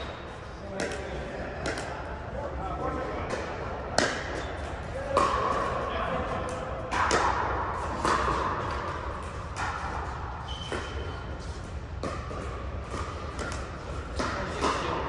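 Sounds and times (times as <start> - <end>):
paddles hitting plastic ball: 11.9 - 15.0.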